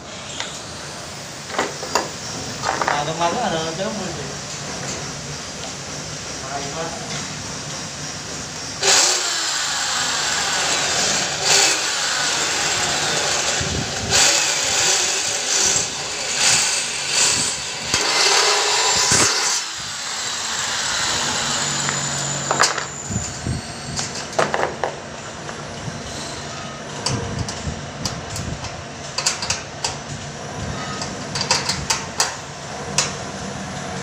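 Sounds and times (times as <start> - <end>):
electric drill boring through metal: 0.2 - 4.4, 7.6 - 32.0.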